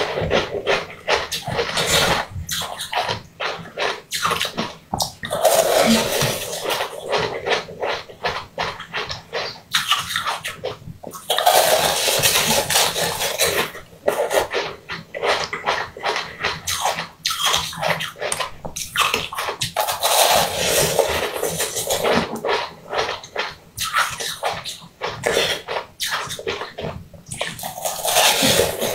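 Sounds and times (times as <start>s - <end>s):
wet chewing and sucking: 0.0s - 28.9s
crunching ice: 11.1s - 28.9s.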